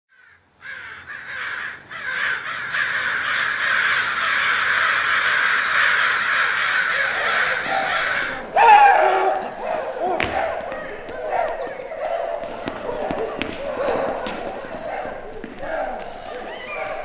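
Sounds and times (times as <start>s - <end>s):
crows cawing: 0.1s - 9.6s.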